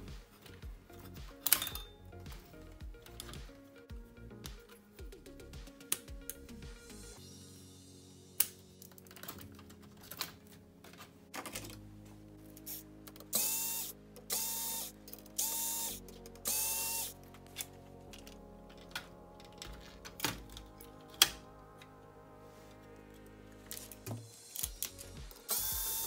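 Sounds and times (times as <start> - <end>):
plastic and metal parts clicking: 8.8 - 11.8
cordless electric screwdriver whirring: 13.3 - 17.1, 25.5 - 26.0.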